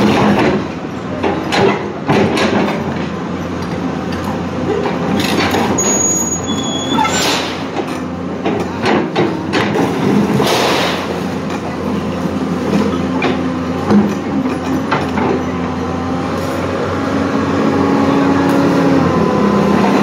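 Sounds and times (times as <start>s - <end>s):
excavator diesel engine running: 0.0s - 20.0s
high metallic squeals: 5.8s - 7.4s.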